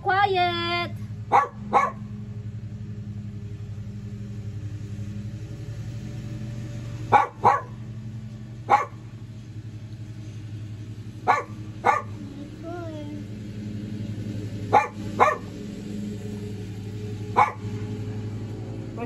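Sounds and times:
steady low hum: 0:00.0 - 0:19.0
dog barking: 0:01.3 - 0:02.0, 0:07.1 - 0:07.8, 0:08.7 - 0:09.0, 0:11.3 - 0:12.2, 0:14.7 - 0:15.5, 0:17.4 - 0:17.6.

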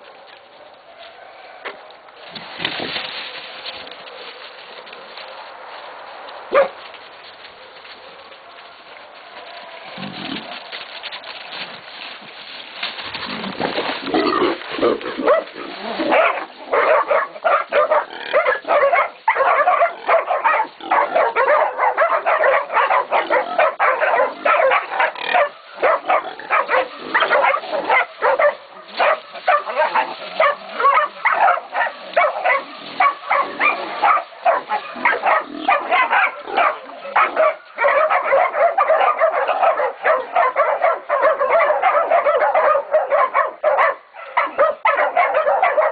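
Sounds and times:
puppies barking: 0:06.5 - 0:06.8, 0:14.8 - 0:45.9.

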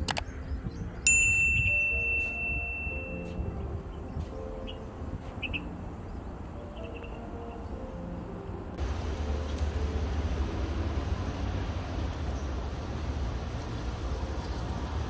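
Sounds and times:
bright bell ding: 0:01.1 - 0:03.4
low background rumble: 0:07.9 - 0:14.8.

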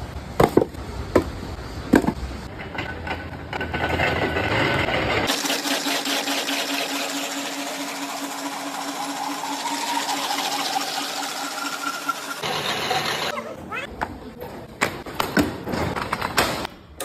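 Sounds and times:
veneer peeling machine running: 0:03.0 - 0:13.3.

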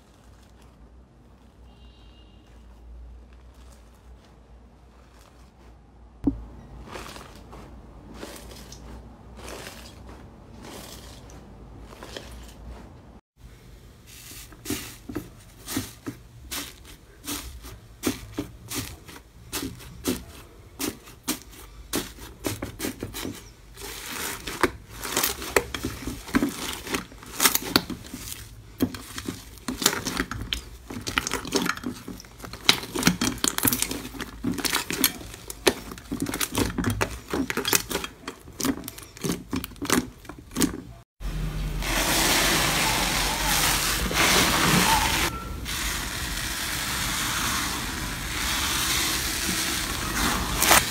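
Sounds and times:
slime soft crackling: 0:00.0 - 0:01.7, 0:02.4 - 0:12.9.

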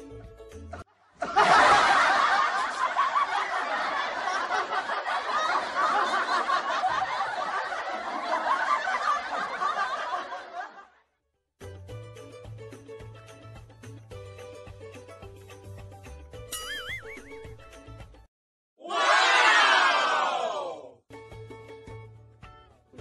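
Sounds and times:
crowd laughing: 0:00.7 - 0:11.1, 0:16.7 - 0:17.5.

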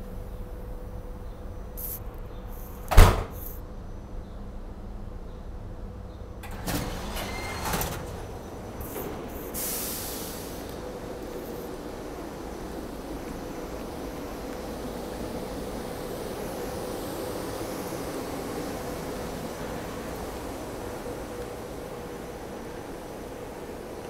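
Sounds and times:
train rumbling while standing: 0:00.0 - 0:24.0
short hiss: 0:01.8 - 0:03.6, 0:08.8 - 0:10.8
train door opening with clatter: 0:02.8 - 0:03.6, 0:06.2 - 0:12.0.

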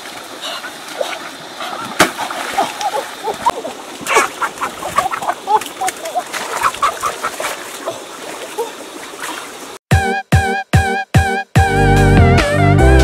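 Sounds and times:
water splashing: 0:00.0 - 0:09.8
chickens clucking: 0:00.4 - 0:08.1.

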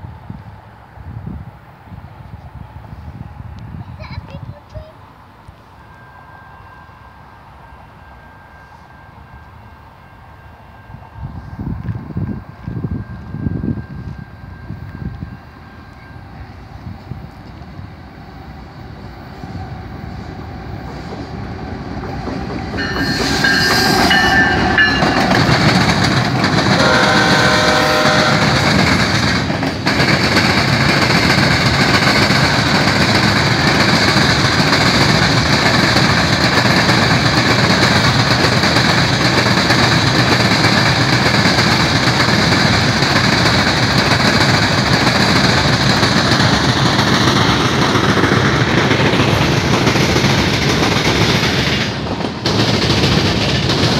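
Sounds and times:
locomotive horn: 0:22.8 - 0:25.4, 0:26.7 - 0:28.8.

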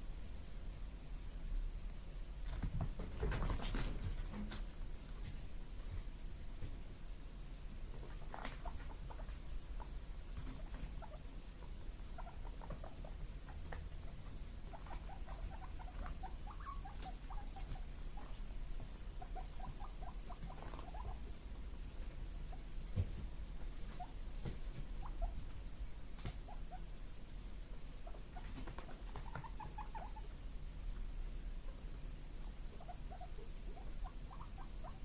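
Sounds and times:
guinea pigs squeaking: 0:07.9 - 0:21.4, 0:22.4 - 0:30.4, 0:32.6 - 0:35.0.

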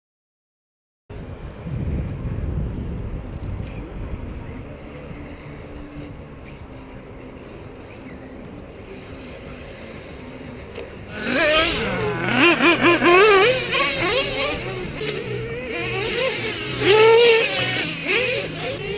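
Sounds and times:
low steady rumbling: 0:01.1 - 0:18.9
rc buggy motors revving: 0:04.7 - 0:18.9.

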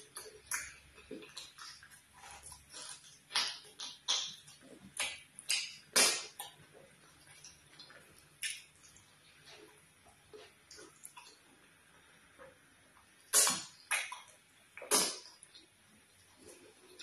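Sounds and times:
wet mouth smacking and chewing: 0:00.0 - 0:11.4.

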